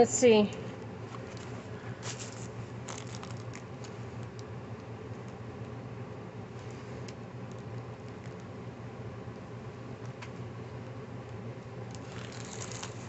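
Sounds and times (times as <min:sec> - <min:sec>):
steady low hum: 0:00.0 - 0:13.0
plastic packets clicking: 0:01.3 - 0:05.7, 0:11.9 - 0:13.0.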